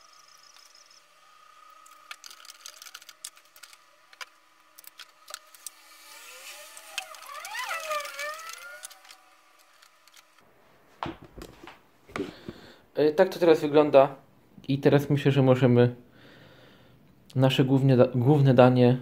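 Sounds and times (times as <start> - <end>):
squeaky plastic rubbing: 5.1 - 10.4.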